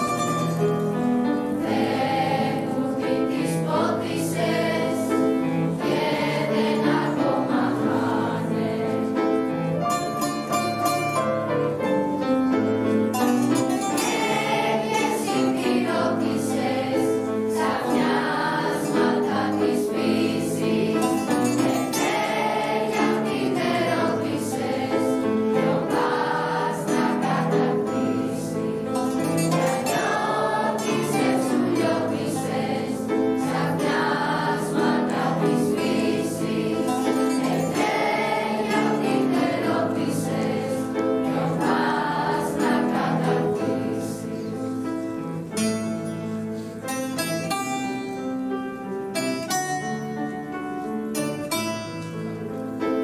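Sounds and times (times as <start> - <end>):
mixed choir singing: 0.0 - 10.3, 13.2 - 45.0
plucked string ensemble: 0.0 - 53.0.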